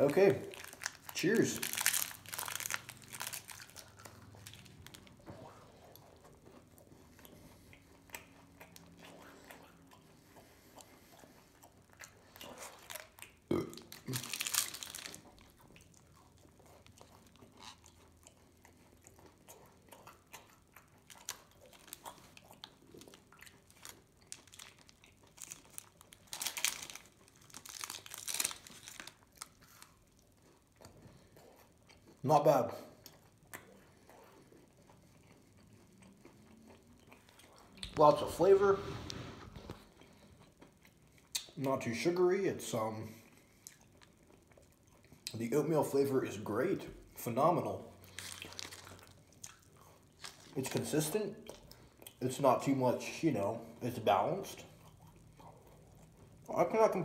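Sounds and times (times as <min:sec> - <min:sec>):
chewing granola bar: 0:00.0 - 0:38.6, 0:39.6 - 0:41.6, 0:42.7 - 0:57.0.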